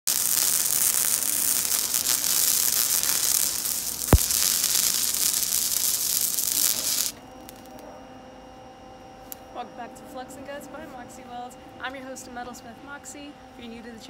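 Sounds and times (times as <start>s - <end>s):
welding arc crackling sizzle: 0.0s - 7.8s
sharp welding pop: 0.1s - 7.8s.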